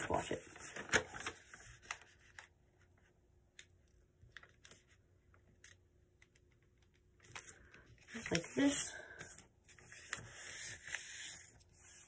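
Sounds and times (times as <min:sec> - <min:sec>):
paper creasing and rustling: 0:00.0 - 0:03.1, 0:07.2 - 0:12.0.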